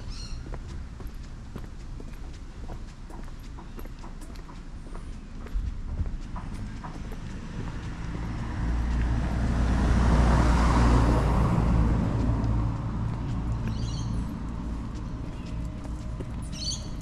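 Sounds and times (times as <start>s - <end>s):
car passing by: 6.3s - 16.6s.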